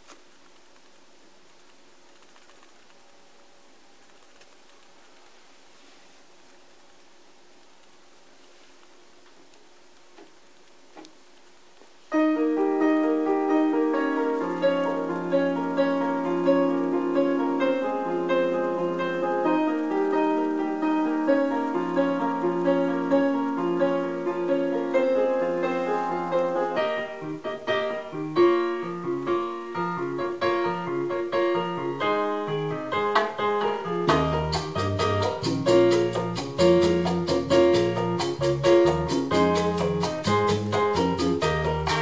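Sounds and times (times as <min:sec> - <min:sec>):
piano music over loudspeakers: 0:12.1 - 0:42.0.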